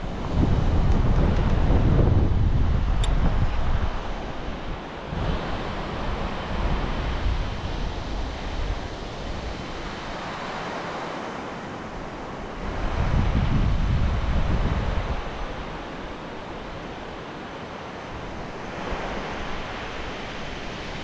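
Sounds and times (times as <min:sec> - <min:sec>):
wind on microphone: 0:00.0 - 0:10.7, 0:11.8 - 0:17.2.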